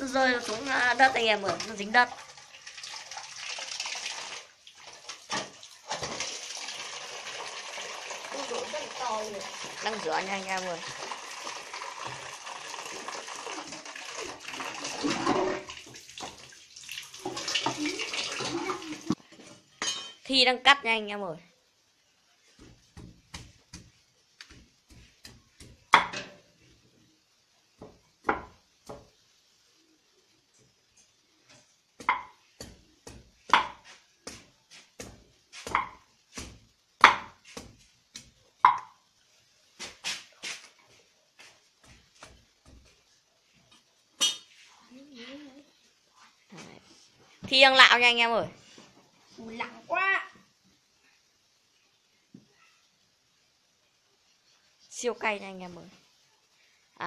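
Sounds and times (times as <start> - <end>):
tap water splashing into metal basin: 1.4 - 19.2
knife chopping on wooden board: 32.0 - 37.8.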